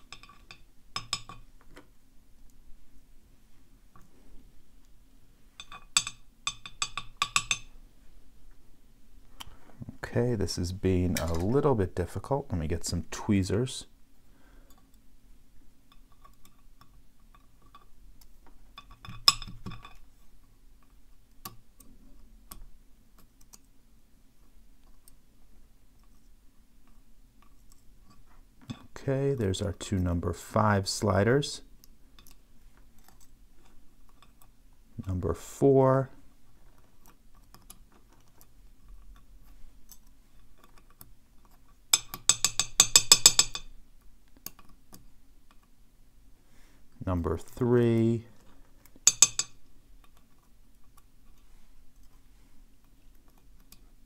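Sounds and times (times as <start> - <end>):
lock pick metallic clicks: 49.0 - 50.2.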